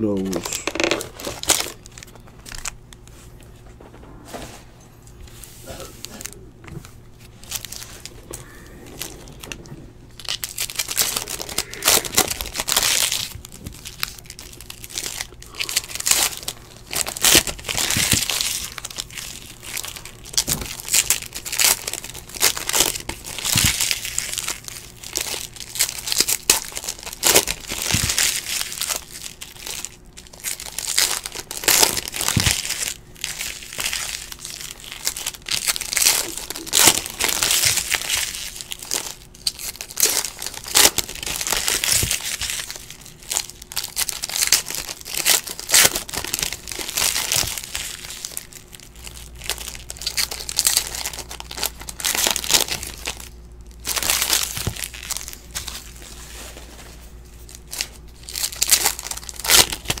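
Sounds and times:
foil wrappers crinkling and tearing: 0:00.0 - 0:03.6, 0:05.2 - 1:00.0.

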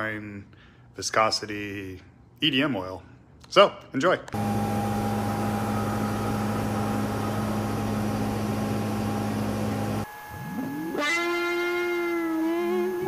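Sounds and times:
milling machine hum and hiss: 0:04.4 - 0:11.0, 0:11.7 - 0:13.0.

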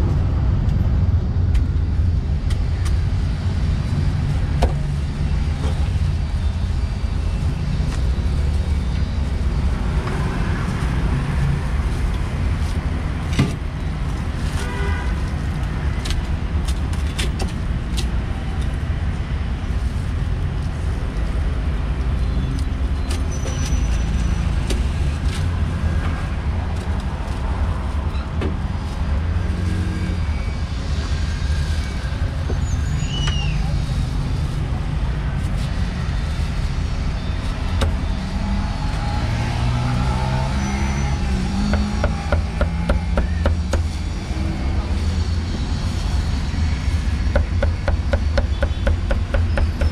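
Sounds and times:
road traffic rumble: 0:00.0 - 0:49.9
motorbikes passing: 0:33.6 - 0:47.9.

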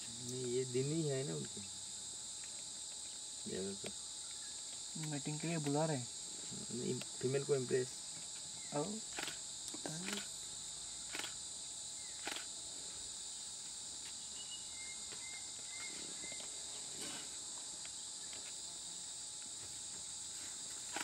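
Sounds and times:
insects chorus: 0:00.0 - 0:21.0
faint ticks: 0:03.8 - 0:05.8
faint whistles: 0:14.4 - 0:16.4.

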